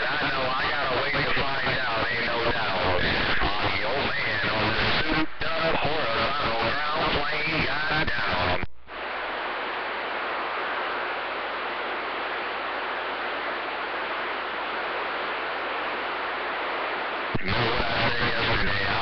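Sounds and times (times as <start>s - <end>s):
voice over radio: 0.0s - 8.7s, 17.2s - 19.0s
radio static hiss: 0.0s - 19.0s.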